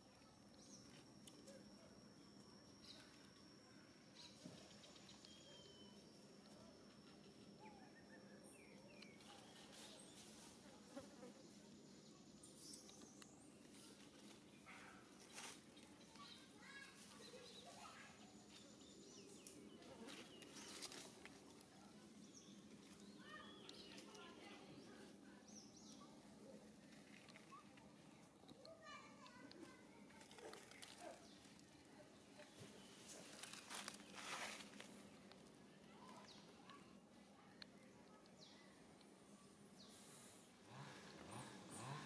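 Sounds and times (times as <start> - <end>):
dry leaves rustling: 20.1 - 21.6, 30.1 - 31.6, 32.8 - 35.3.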